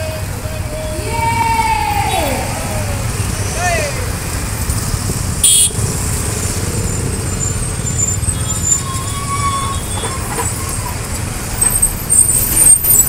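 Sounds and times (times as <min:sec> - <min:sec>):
motorcycle engines: 0:00.0 - 0:13.0
road traffic rumble: 0:00.0 - 0:13.0
vehicle horn beep: 0:05.4 - 0:05.8.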